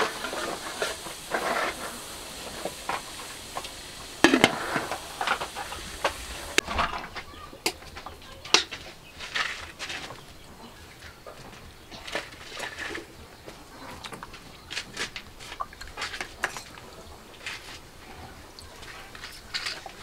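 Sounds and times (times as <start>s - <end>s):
steamer hissing: 0.0s - 6.7s
metal lid clank: 4.2s - 7.2s.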